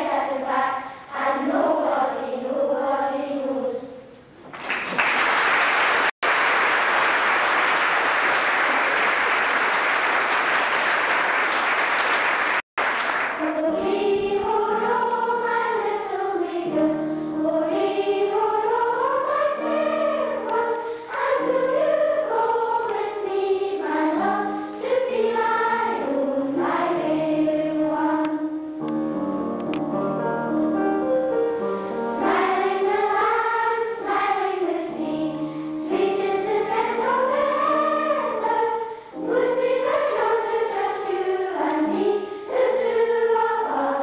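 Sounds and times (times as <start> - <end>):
girls choir singing: 0.0 - 4.2, 12.2 - 28.9, 30.2 - 44.0
applause: 4.5 - 13.4.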